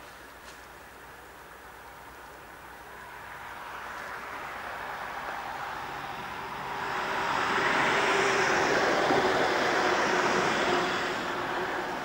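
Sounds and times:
vehicle passing by: 2.8 - 12.0.

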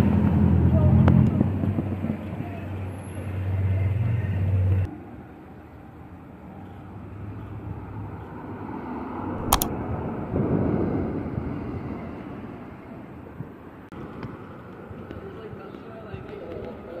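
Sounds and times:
traffic rumble: 0.0 - 17.0
sharp click: 9.4 - 9.7.

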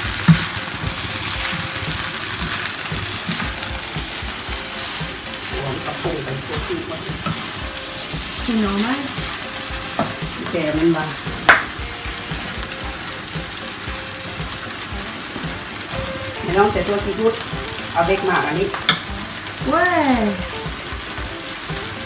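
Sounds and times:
rice sizzling in a frying pan: 0.0 - 22.0.

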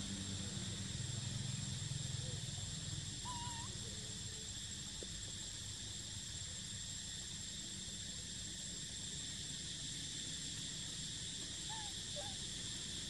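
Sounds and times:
high-pitched insect drone: 0.2 - 4.7, 5.6 - 13.0
wavering whistle-like call: 11.6 - 12.4.

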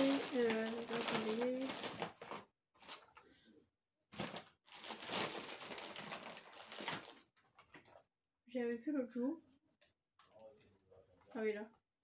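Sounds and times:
packaging rustling and crinkling: 0.0 - 3.2, 4.1 - 8.0.

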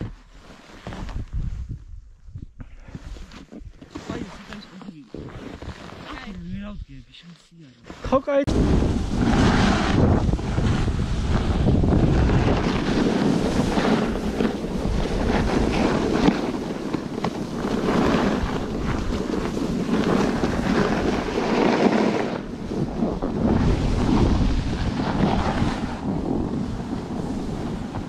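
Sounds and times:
snowboard sliding on snow: 0.0 - 1.7, 3.9 - 6.7, 7.8 - 28.0
wind buffeting microphone: 1.0 - 3.8, 8.5 - 28.0.

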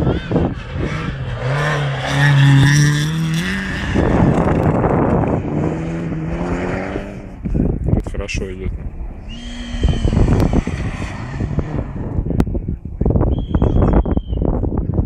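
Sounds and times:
car engine revving hard: 0.0 - 7.6, 8.8 - 12.4
second car engine high pitch: 8.8 - 12.4.

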